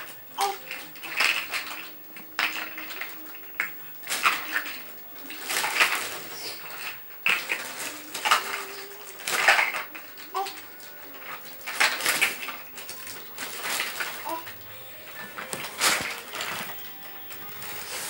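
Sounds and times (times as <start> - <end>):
plastic bag crinkling: 0.0 - 18.0
plastic toy blocks clattering: 0.0 - 18.0.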